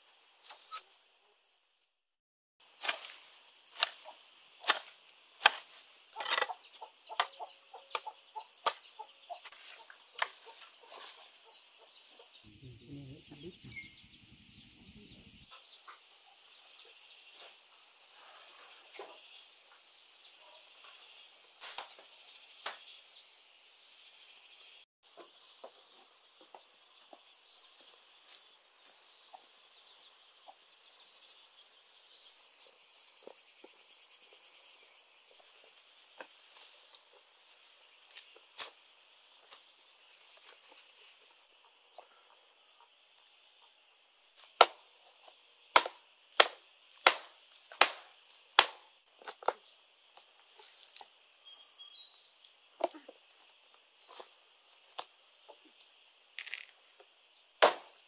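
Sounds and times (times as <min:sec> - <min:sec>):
machete chopping strikes: 0:02.8 - 0:08.9, 0:44.5 - 0:44.8, 0:45.7 - 0:49.5, 0:57.6 - 0:58.0.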